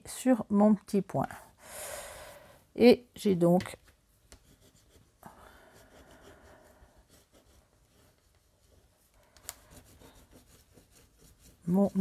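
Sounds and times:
paper rustling and rubbing: 0:06.0 - 0:12.0.

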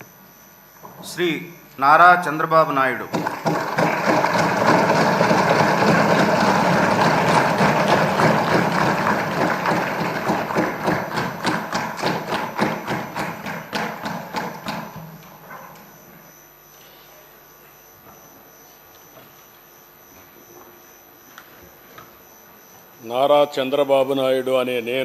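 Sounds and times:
crowd applauding loudly: 0:03.0 - 0:14.6.

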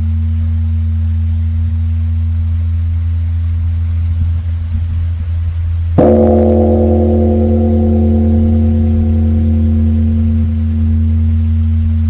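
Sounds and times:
deep bell hum: 0:06.0 - 0:12.0
large temple bell struck: 0:06.0 - 0:12.0.

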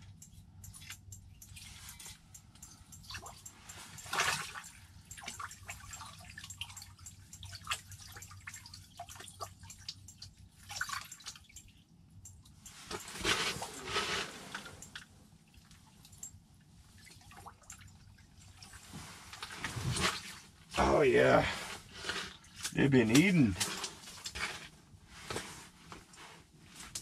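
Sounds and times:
water dripping and splashing: 0:00.6 - 0:13.1, 0:14.8 - 0:18.8.

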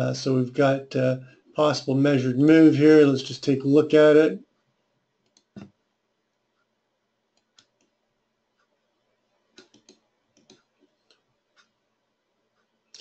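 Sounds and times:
computer mouse clicks: 0:05.2 - 0:05.7, 0:07.4 - 0:08.0, 0:09.5 - 0:11.8.

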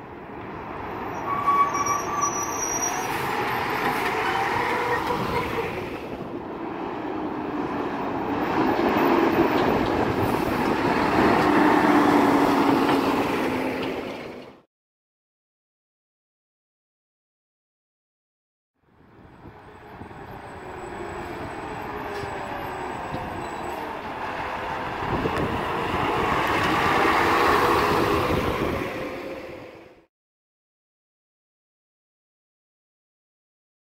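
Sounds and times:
garbage truck driving by: 0:00.6 - 0:14.6, 0:19.3 - 0:30.1.

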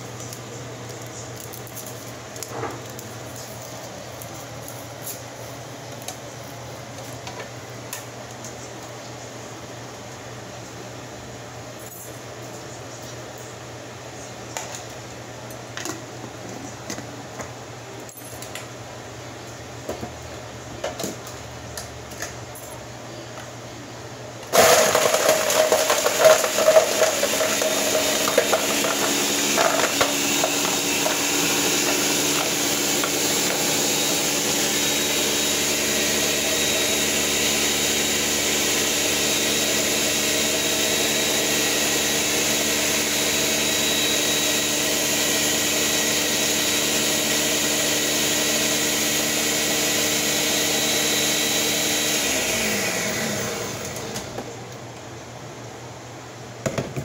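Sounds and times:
blender motor running: 0:24.5 - 0:54.5.

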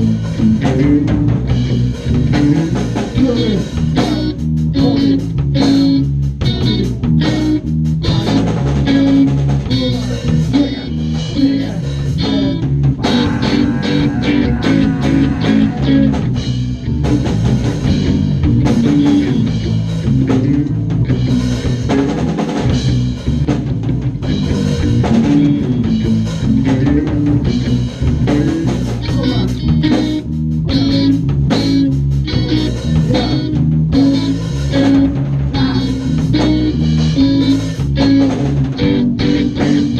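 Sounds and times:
drum kit: 0:00.0 - 0:39.9
electric bass: 0:00.0 - 0:39.9
electric guitar: 0:00.0 - 0:39.9.

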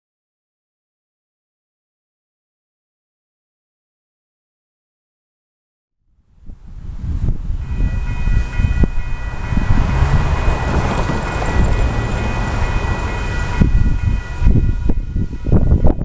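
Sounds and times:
wind rumble on microphone: 0:06.3 - 0:16.0
cars passing: 0:07.4 - 0:15.6
crossing warning bell ringing: 0:07.4 - 0:16.0.

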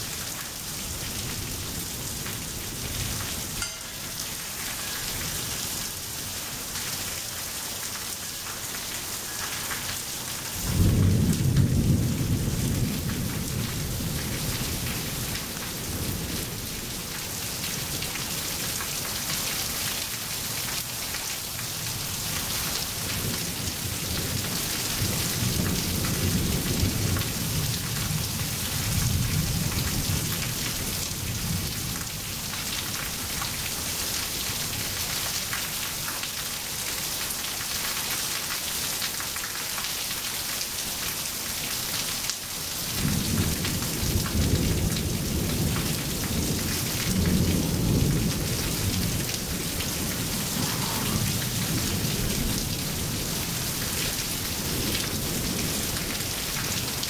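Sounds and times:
rain on pavement: 0:00.0 - 0:57.0
thunder clap and rumbles: 0:10.6 - 0:16.4.

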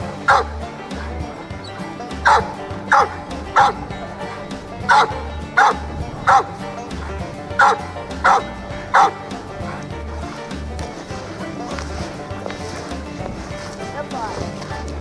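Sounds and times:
background music with beat: 0:00.0 - 0:15.0
dog barking: 0:00.2 - 0:01.1, 0:02.2 - 0:06.6, 0:07.6 - 0:09.9.

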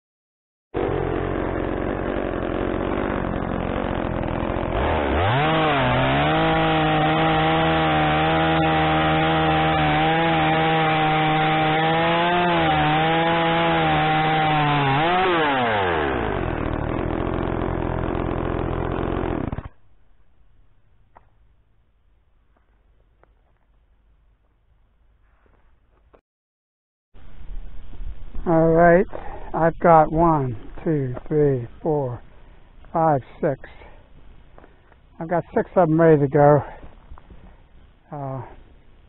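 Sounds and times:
chainsaw running and revving: 0:00.8 - 0:19.8
chainsaw cutting timber: 0:00.8 - 0:20.0.

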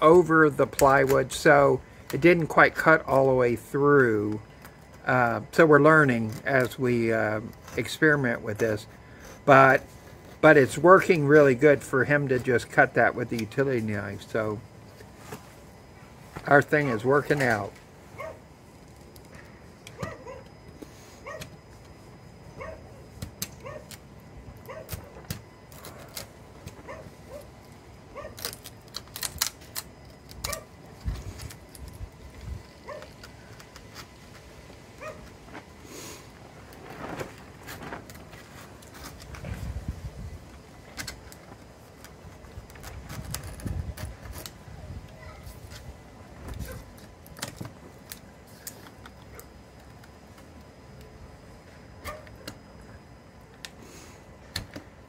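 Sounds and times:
dog barking: 0:18.2 - 0:18.4, 0:20.0 - 0:20.4, 0:22.6 - 0:22.8, 0:52.0 - 0:52.3.

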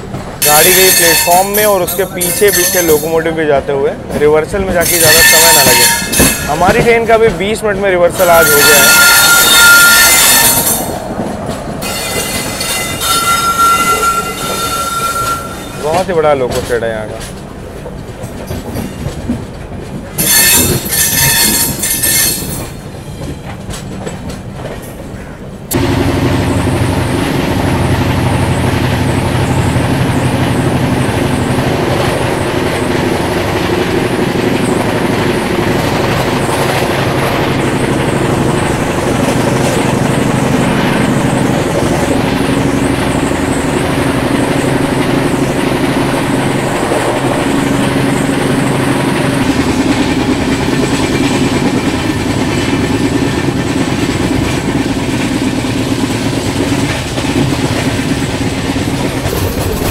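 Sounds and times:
train wheels running on track: 0:00.0 - 0:59.9
high-pitched squeal: 0:08.2 - 0:11.0.

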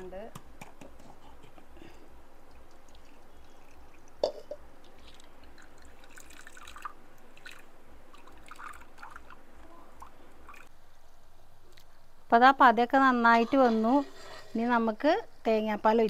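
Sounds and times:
mixture boiling with bubble pops: 0:02.4 - 0:10.7.

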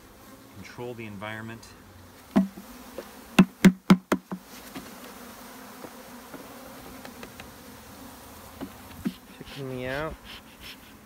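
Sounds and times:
honey bees buzzing: 0:00.0 - 0:11.0
sharp knocks: 0:03.4 - 0:04.4.

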